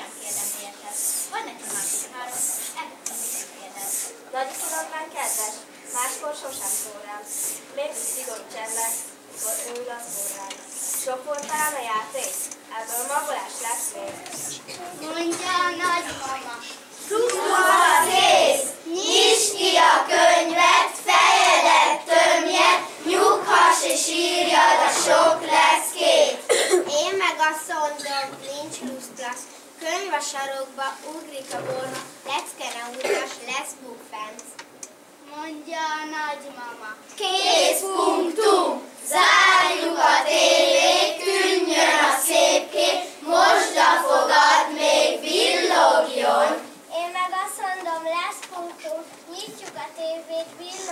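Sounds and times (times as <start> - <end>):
children singing in unison: 17.1 - 26.4, 37.2 - 46.7.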